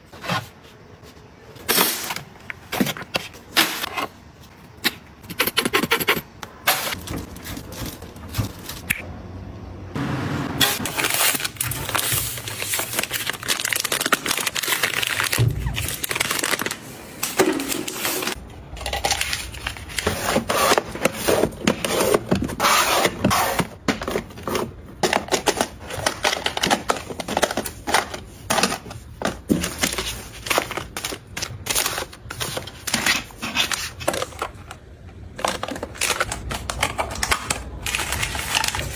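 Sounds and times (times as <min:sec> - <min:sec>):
plastic wrapping crinkling: 0:10.8 - 0:20.1.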